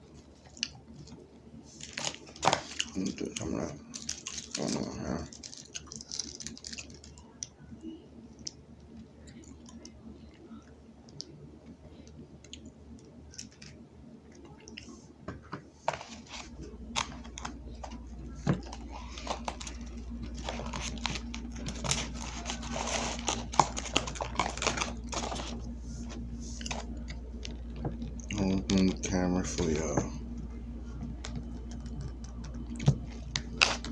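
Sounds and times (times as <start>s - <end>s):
low steady hum: 0.0s - 33.9s
hands crinkling food packaging: 1.8s - 7.5s, 15.9s - 28.7s, 31.2s - 33.9s.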